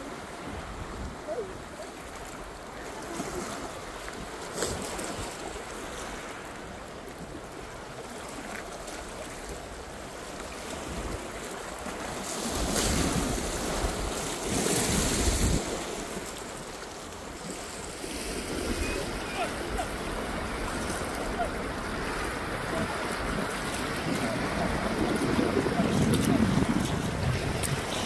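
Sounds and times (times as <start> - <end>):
wind on microphone: 0.0 - 2.0, 12.2 - 16.2, 17.9 - 28.0
sea water washing on shore: 0.0 - 28.0.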